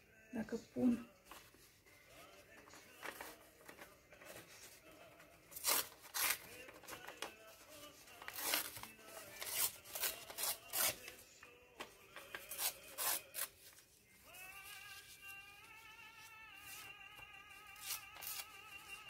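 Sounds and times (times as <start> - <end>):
soft background music: 0.0 - 19.0
paper rustling: 1.2 - 19.0
paper tearing: 5.5 - 7.2, 8.1 - 11.2, 12.2 - 13.8, 17.7 - 18.8.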